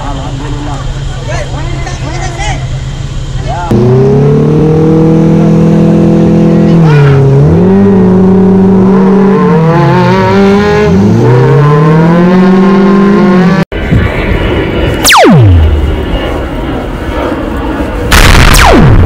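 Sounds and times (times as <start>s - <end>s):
buggy engine revving: 3.5s - 13.7s
falling whistle sound effect: 15.0s - 15.6s.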